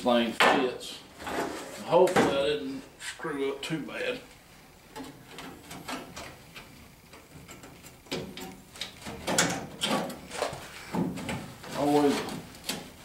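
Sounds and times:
metal panel scraping and clunking: 0:01.2 - 0:01.9.

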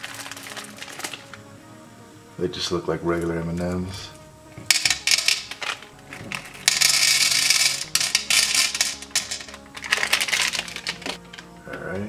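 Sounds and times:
sweets rattling into plastic tray: 0:00.0 - 0:01.4, 0:04.7 - 0:11.5.

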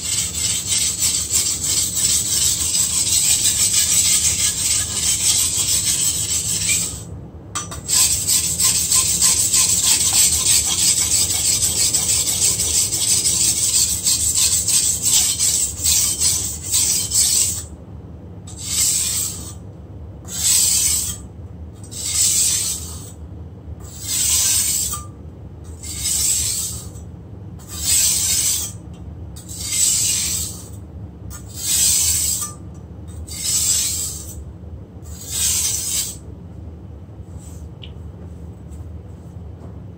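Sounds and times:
blade grinding on wet whetstone: 0:00.0 - 0:07.0, 0:07.8 - 0:17.7, 0:18.5 - 0:19.6, 0:20.3 - 0:21.2, 0:21.9 - 0:23.1, 0:23.9 - 0:25.0, 0:25.8 - 0:26.9, 0:27.6 - 0:28.8, 0:29.4 - 0:30.7, 0:31.4 - 0:32.6, 0:33.3 - 0:34.4, 0:35.1 - 0:36.2.

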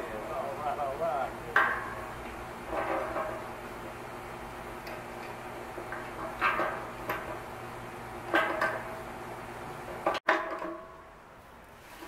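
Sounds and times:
wrench clanking on metal tank: 0:05.9 - 0:07.4, 0:08.3 - 0:09.0.

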